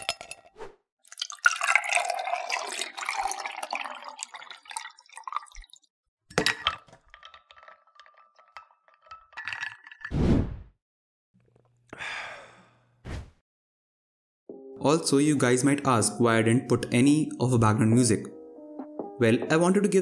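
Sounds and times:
glass clink: 0.0 - 0.5
milk trickling with crackles: 1.1 - 5.8
coffee pouring over ice: 1.1 - 10.1.

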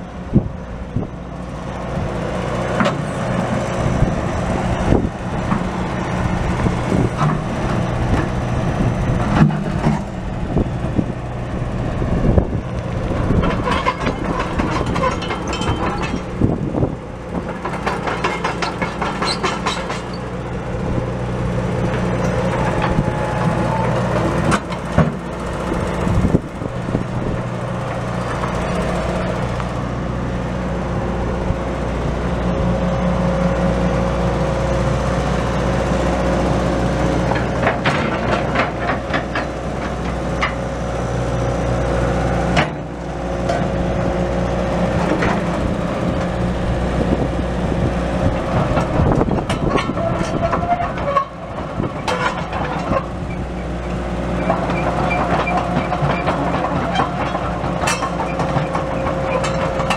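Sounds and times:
excavator diesel engine running: 0.0 - 59.9
metal clanks and knocks: 9.2 - 10.2, 13.2 - 16.5, 17.4 - 20.3, 37.3 - 40.6, 48.5 - 53.4, 54.4 - 59.9.

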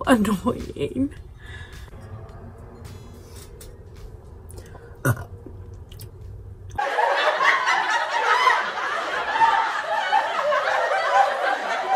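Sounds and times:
dense laughter: 6.8 - 11.9.

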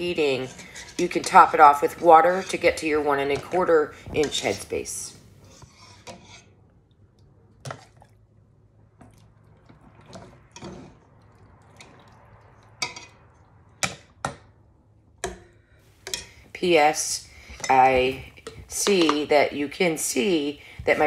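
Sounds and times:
metal spoon scraping a pot: 0.0 - 6.6, 9.8 - 11.0, 11.8 - 14.0, 16.0 - 19.3.

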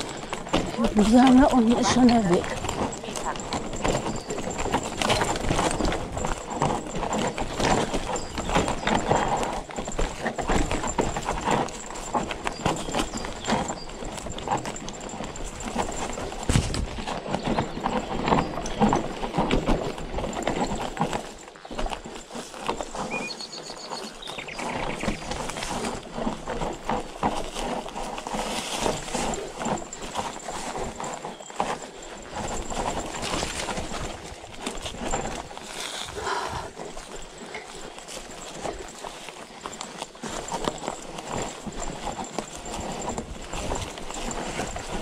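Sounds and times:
bike rattling and knocking: 0.0 - 45.0
bird chirping: 23.1 - 25.3.

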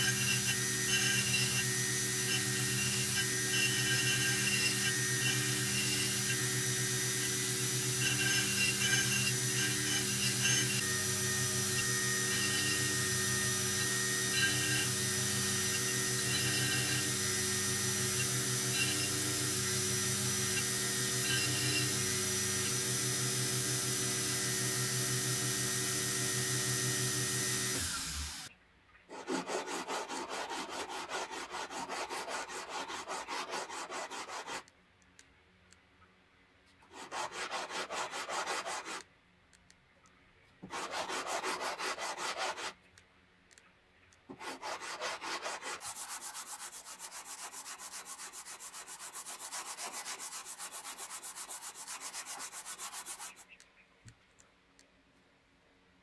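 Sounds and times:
belt grinder running: 0.0 - 28.5
metal rubbed on sandpaper: 8.0 - 10.8, 29.1 - 34.7, 36.9 - 39.0, 40.6 - 42.8, 44.3 - 53.6.

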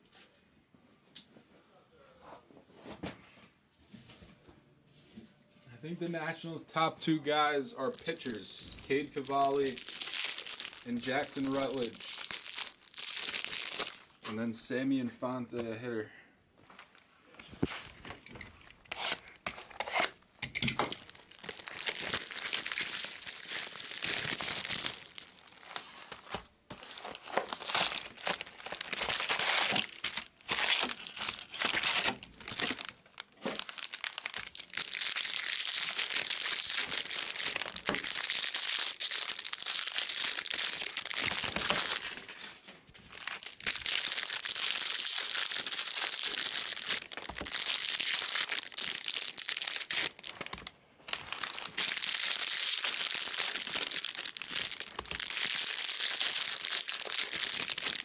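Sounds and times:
foil wrappers crinkling and tearing: 7.8 - 14.3, 17.6 - 20.2, 20.8 - 58.0.

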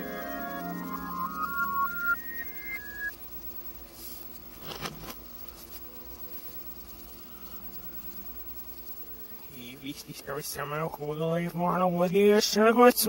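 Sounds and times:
music played backwards: 0.0 - 3.1
faint steady hum: 0.0 - 13.0.

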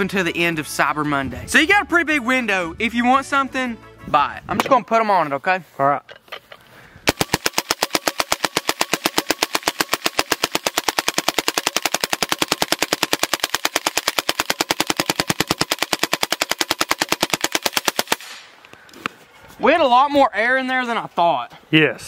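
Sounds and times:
air rifle firing full-auto burst: 7.1 - 18.5.

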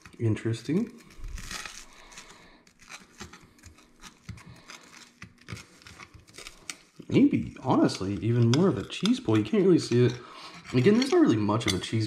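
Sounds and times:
knife sawing through toast crust: 1.0 - 6.8, 8.7 - 11.5.

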